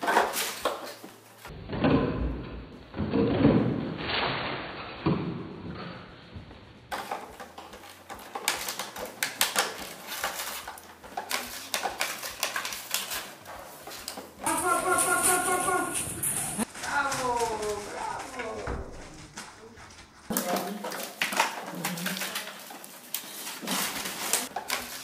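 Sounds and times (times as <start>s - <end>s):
puppy claws clicking on tiles: 6.9s - 25.0s
rustling towels and newspaper: 6.9s - 25.0s.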